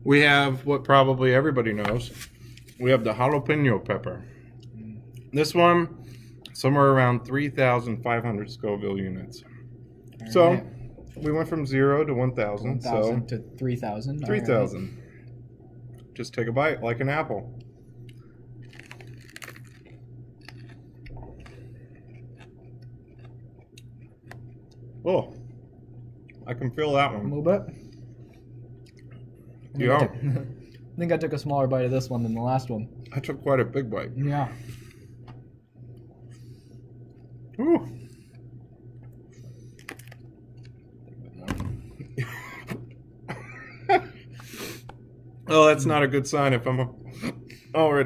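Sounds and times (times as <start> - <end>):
low hum: 0.0 - 48.0
wet chewing clicks: 17.6 - 26.4, 28.7 - 29.6
people chewing: 17.6 - 26.6, 27.7 - 33.4, 34.6 - 43.6
pepper crunching: 18.0 - 24.9, 39.8 - 40.8.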